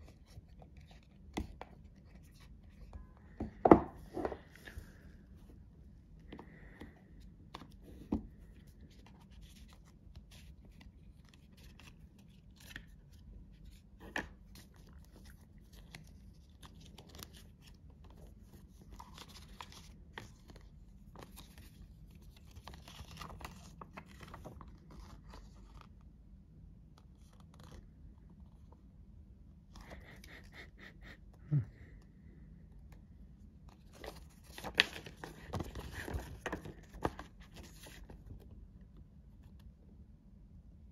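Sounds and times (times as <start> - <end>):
paper rustling: 7.5 - 26.0, 33.7 - 38.5.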